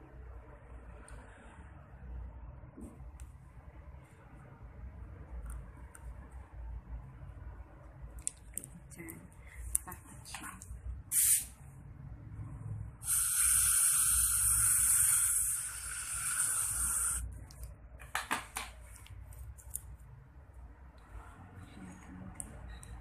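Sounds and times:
compressed air spray hissing: 0:11.1 - 0:11.6, 0:13.0 - 0:17.3.

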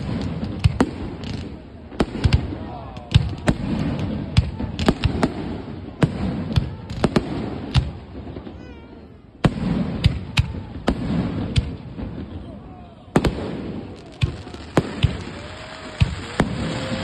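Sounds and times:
firework shells bursting: 0:13.2 - 0:17.0.

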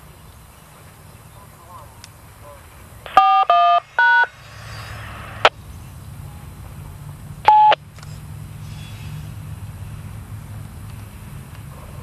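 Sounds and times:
radio hiss: 0:01.5 - 0:07.7
short beep: 0:03.1 - 0:04.3, 0:07.5 - 0:07.8
freight train rumble: 0:03.8 - 0:12.0.

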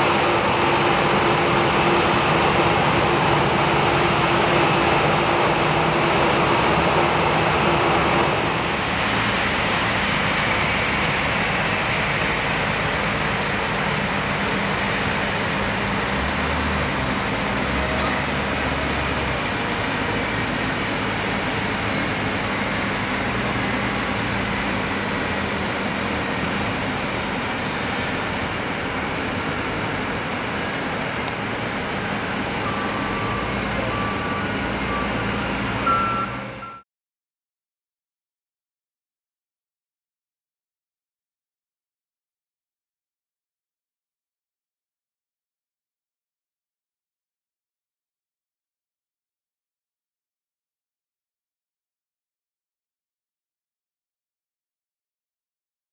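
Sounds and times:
jet engine running: 0:00.0 - 0:35.9
reversing beeper beeps: 0:32.6 - 0:36.8.

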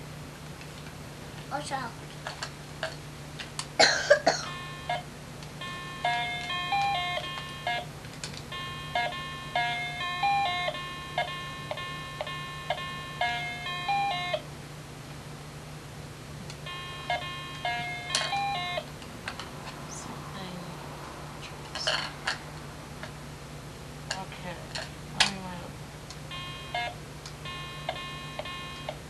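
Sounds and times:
toy beeping electronic melody: 0:04.5 - 0:05.0, 0:05.6 - 0:07.9, 0:08.5 - 0:14.4, 0:16.7 - 0:18.8, 0:26.3 - 0:29.0.

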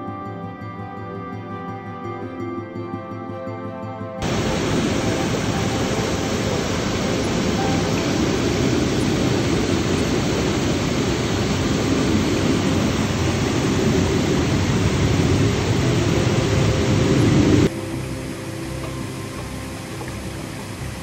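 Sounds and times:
waterfall and stream rushing: 0:04.2 - 0:21.0.

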